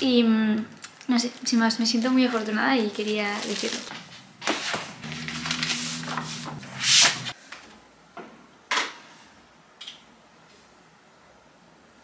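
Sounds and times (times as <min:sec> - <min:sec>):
papers and folder rustling: 0:01.9 - 0:07.4
steady low hum: 0:03.9 - 0:07.4.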